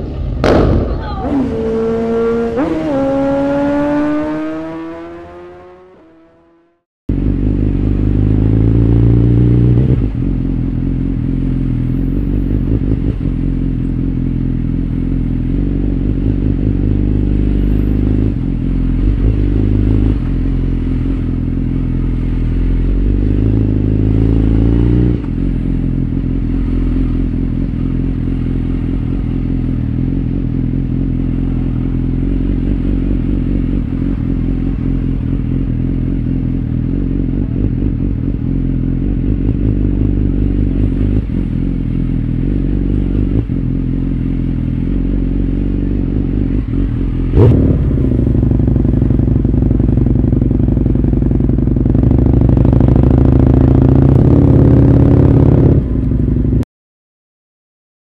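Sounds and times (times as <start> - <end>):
motorcycle engine at low revs: 0.0 - 56.6.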